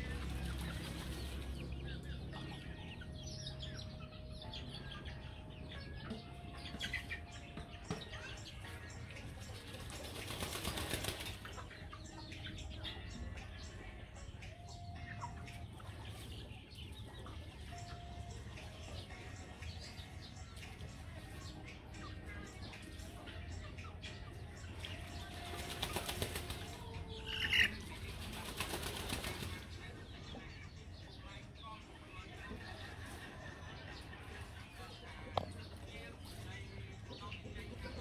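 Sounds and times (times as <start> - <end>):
chickens pecking and scratching dirt: 0.0 - 38.0
wings flapping: 0.1 - 1.6, 9.5 - 11.6, 25.2 - 29.7.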